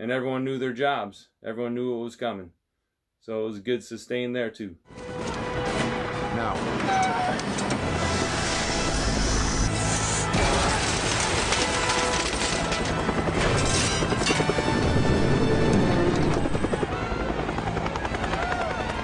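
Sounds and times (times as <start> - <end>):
film music: 4.9 - 19.0
helicopter rotor chopping: 5.1 - 19.0.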